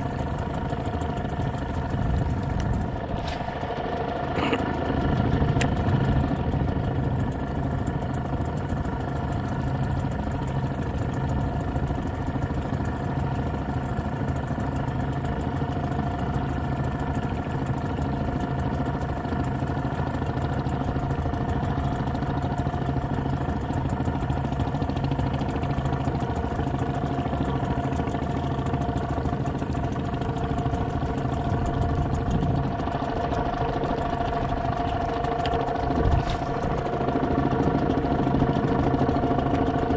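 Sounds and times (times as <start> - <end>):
boat engine running: 0.0 - 39.9.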